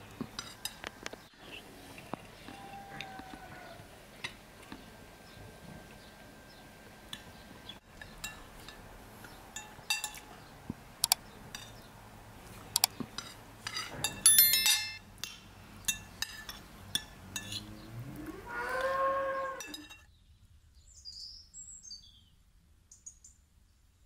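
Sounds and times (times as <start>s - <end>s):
cow mooing: 2.4s - 3.9s, 17.3s - 19.9s
spoons clinking on china: 9.6s - 10.3s, 13.2s - 17.6s.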